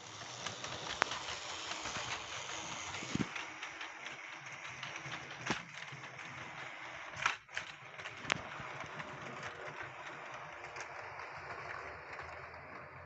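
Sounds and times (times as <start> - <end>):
small electric motor whirring: 0.0 - 7.2
wheels rolling on rails: 0.0 - 13.0.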